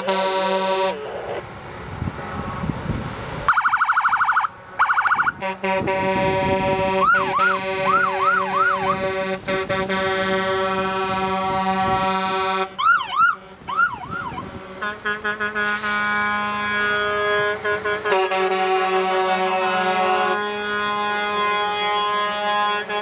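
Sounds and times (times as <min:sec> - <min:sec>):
truck air horn blast: 0:00.0 - 0:01.3, 0:05.3 - 0:12.8, 0:14.5 - 0:23.0
police siren: 0:03.5 - 0:05.6, 0:06.5 - 0:14.6.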